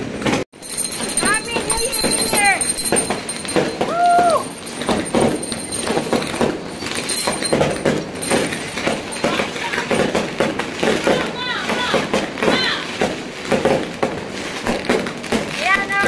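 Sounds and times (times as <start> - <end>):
drawn-out rising and falling call: 0.6 - 10.4
people chattering and exclaiming: 8.8 - 13.0.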